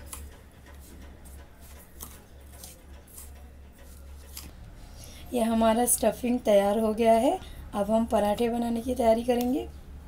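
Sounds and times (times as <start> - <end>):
low steady hum: 3.2 - 10.0.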